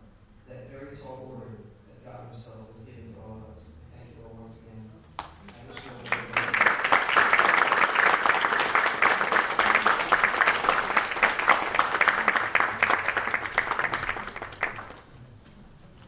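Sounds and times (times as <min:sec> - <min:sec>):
audience applauding: 0:05.2 - 0:15.4.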